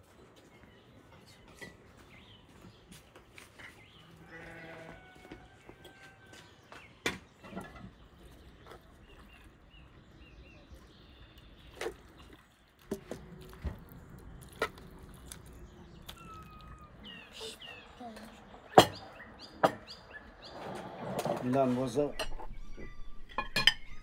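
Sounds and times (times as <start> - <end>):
dishes and utensils clinking: 23.2 - 24.0.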